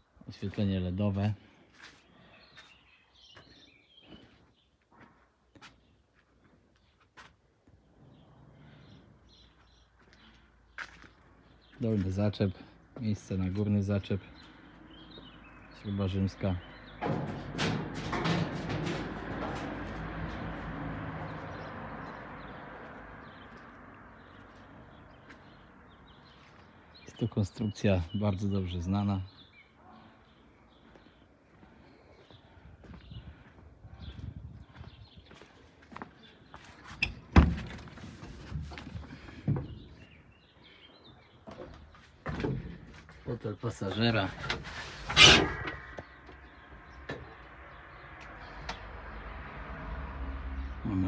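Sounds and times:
vehicle passing by: 18.4s - 26.1s, 45.5s - 51.0s.

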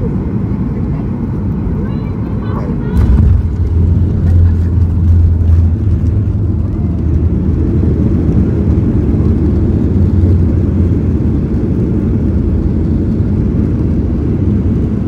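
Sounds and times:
aircraft cabin engine rumble: 0.0s - 15.0s.

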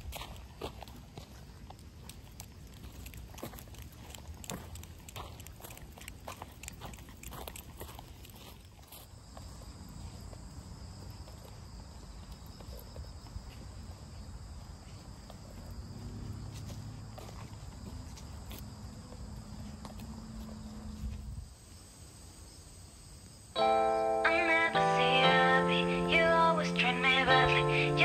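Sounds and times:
footsteps on dry leaves: 0.0s - 9.2s
insects chirring: 2.8s - 28.0s.

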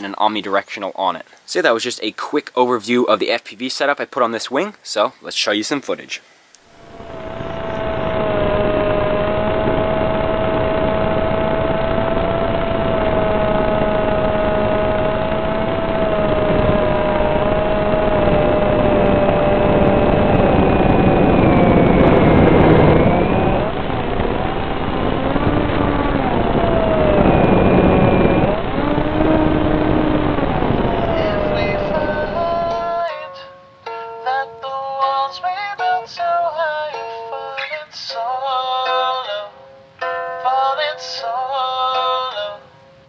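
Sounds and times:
electric motor whine: 6.6s - 33.1s
wind rush: 6.6s - 33.1s.

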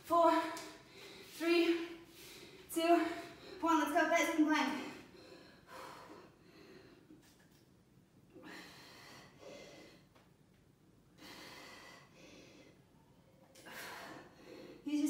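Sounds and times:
woman breathing: 0.6s - 3.8s, 4.7s - 7.4s, 8.3s - 10.4s, 11.0s - 14.9s.

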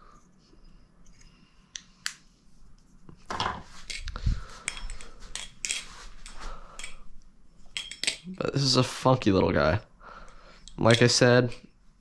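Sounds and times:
balisong handles clacking: 3.8s - 7.0s, 10.3s - 11.7s.

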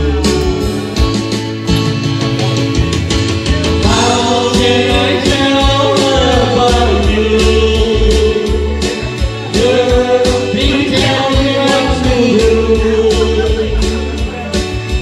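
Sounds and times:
backing track with drum beat: 0.0s - 15.0s
man singing into microphone: 3.8s - 14.8s.

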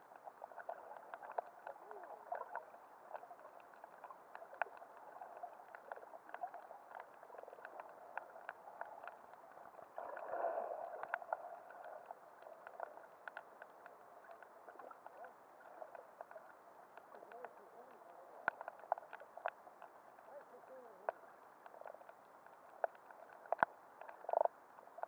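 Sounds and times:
underwater water noise: 0.0s - 25.0s
water gurgling: 0.0s - 25.0s
sharp clicks and crackles: 10.9s - 25.0s.

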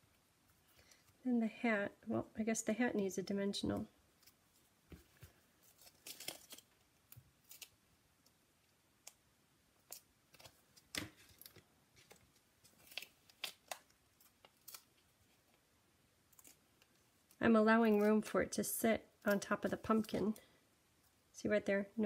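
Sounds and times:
paper and card rustling: 4.2s - 6.8s.

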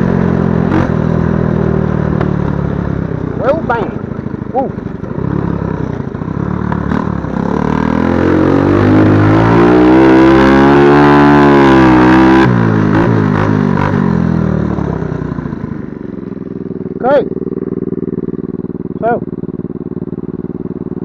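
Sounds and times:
quad engine revving: 0.0s - 2.7s, 3.3s - 15.8s.

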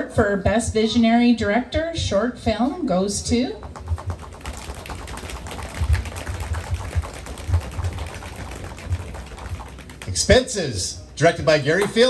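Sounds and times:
hands drumming on tabletops: 3.6s - 10.2s.

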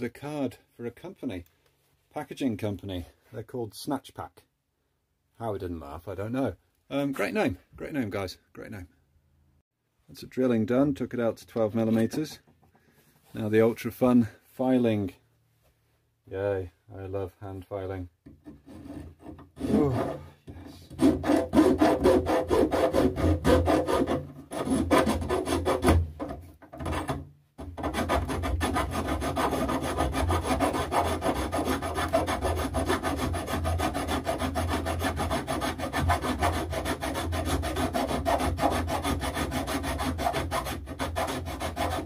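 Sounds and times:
hand file rasping on steel: 18.3s - 42.0s.

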